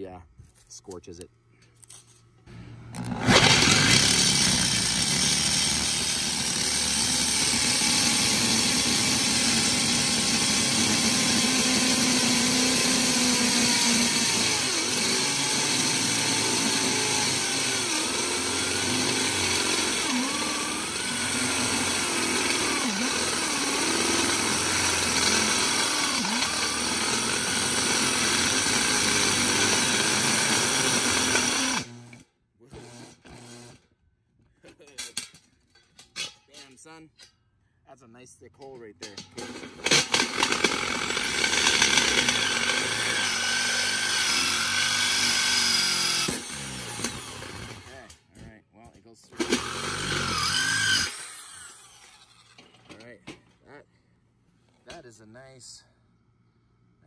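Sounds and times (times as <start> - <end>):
electric drill cutting steel: 2.9 - 33.8, 39.4 - 48.0, 49.3 - 52.8.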